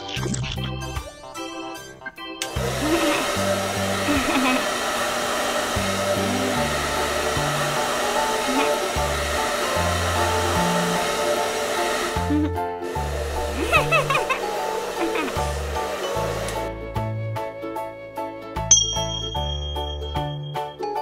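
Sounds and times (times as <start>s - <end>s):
background music with bass line: 0.0s - 2.8s
hair dryer blowing: 2.4s - 16.8s.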